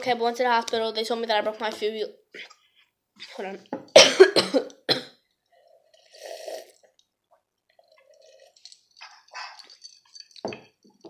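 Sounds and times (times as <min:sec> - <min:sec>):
person sipping and gulping: 0:04.7 - 0:10.8
swallowing sounds: 0:05.4 - 0:09.9.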